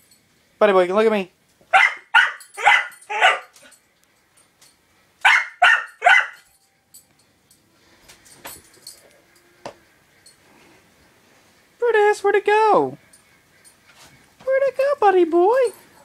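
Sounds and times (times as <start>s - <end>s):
dog barking sharply: 1.7s - 3.5s, 5.2s - 6.4s.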